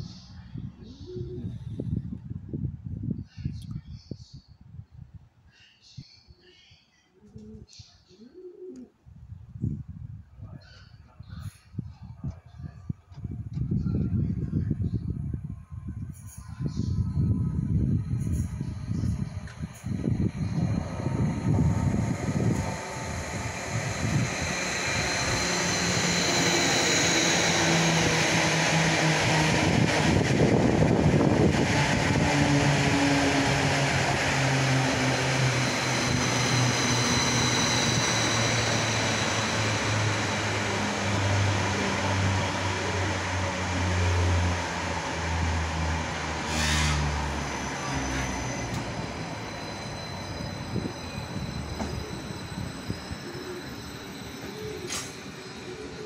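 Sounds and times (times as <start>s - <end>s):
wheel and rail noise: 16.0s - 56.0s
electric train motor hum: 17.0s - 56.0s.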